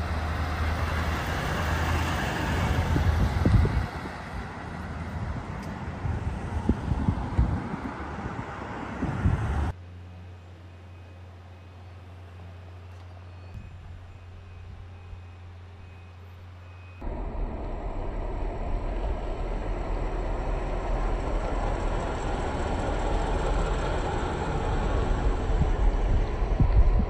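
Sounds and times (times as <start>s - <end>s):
tow truck driving: 0.0s - 27.0s
steady low hum: 17.0s - 27.0s.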